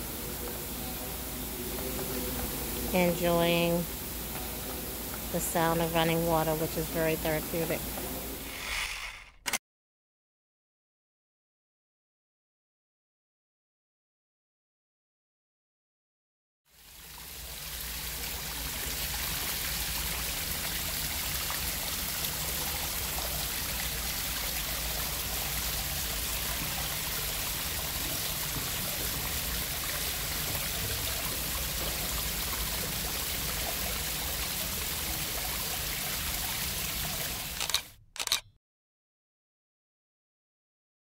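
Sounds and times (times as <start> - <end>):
water running over rocks: 16.7 - 37.6.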